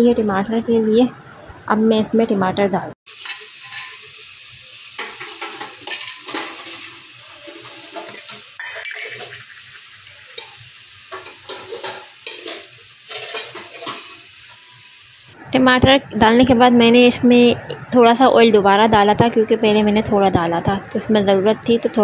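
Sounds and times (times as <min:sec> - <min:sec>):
steel spoon scraping a pan: 0:03.1 - 0:04.2, 0:04.9 - 0:14.9
vegetables sizzling in oil: 0:03.1 - 0:15.4.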